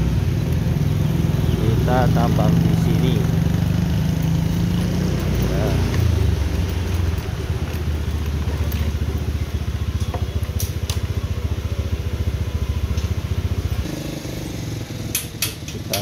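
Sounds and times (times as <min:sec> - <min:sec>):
small motorcycle engine running: 0:00.0 - 0:16.0.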